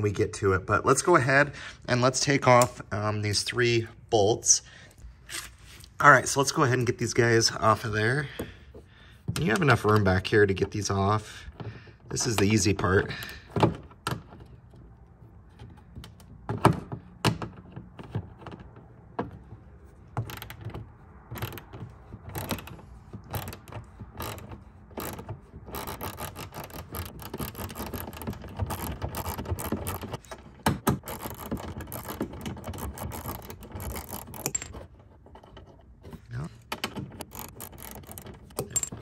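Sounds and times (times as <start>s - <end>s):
hand ratchet clicking: 21.3s - 34.7s, 36.7s - 38.9s.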